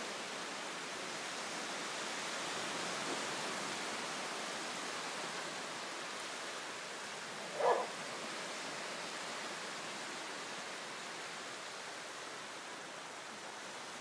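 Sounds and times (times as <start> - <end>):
dog barking: 7.5 - 7.9.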